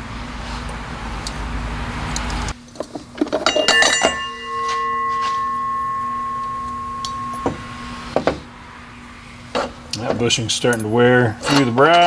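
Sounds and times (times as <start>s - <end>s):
loose steel parts clinking: 2.2s - 7.7s, 9.6s - 12.0s
metal part ringing like a bell: 3.4s - 8.2s.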